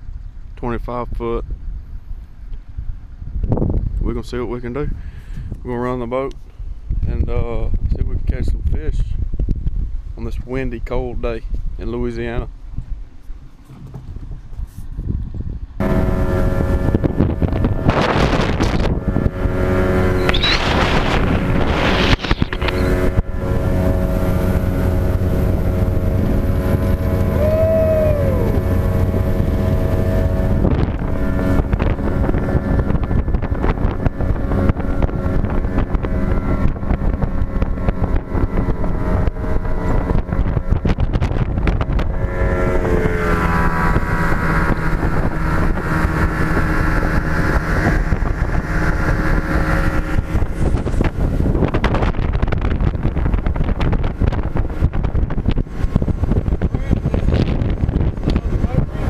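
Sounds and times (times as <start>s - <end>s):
wind buffeting microphone: 0.0s - 59.0s
outboard motor running: 15.8s - 59.0s.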